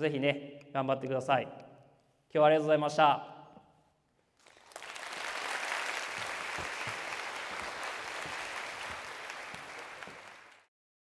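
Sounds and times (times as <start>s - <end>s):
audience applauding: 4.4s - 10.7s.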